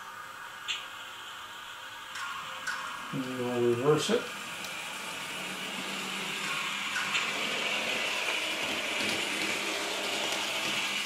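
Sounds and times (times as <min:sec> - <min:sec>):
model train diesel engine sound: 0:03.2 - 0:11.0.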